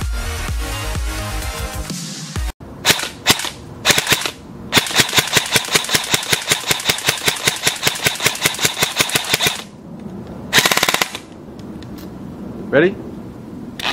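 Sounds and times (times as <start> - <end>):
airsoft rifle firing: 2.8 - 9.7, 10.5 - 11.3.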